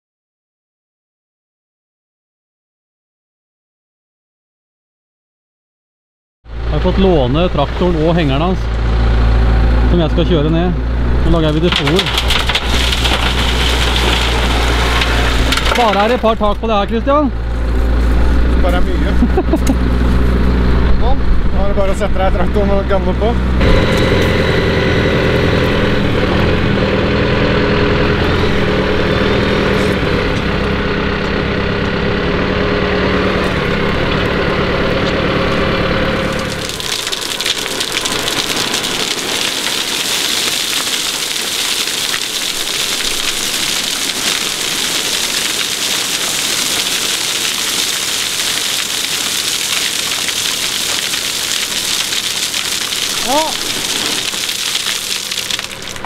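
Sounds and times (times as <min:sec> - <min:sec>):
tractor engine humming: 0:06.5 - 0:56.0
gravel pouring off trailer: 0:11.0 - 0:20.3, 0:33.0 - 0:56.0.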